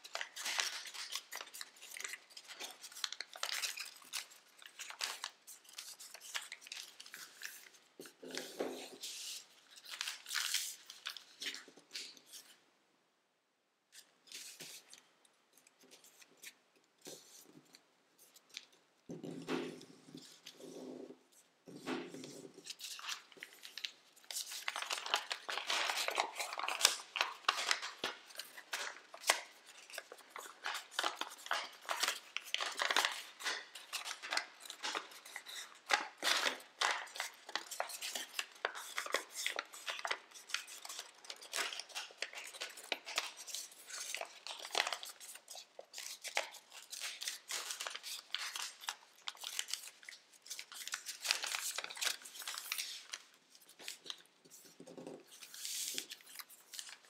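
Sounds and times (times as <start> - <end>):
foil paper crinkling: 0.0 - 12.6, 22.4 - 57.0.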